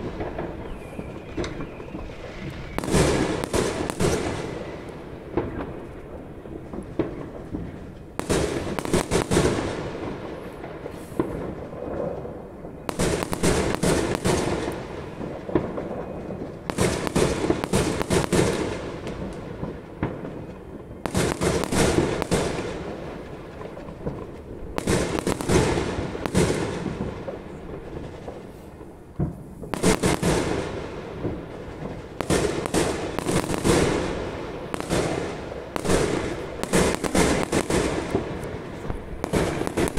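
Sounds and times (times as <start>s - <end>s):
firework shells bursting: 29.3s - 39.9s.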